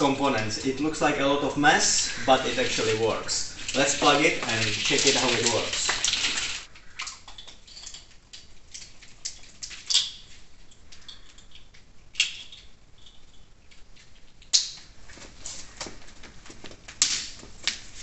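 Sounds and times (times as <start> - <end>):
cable rustling: 0.0 - 6.8.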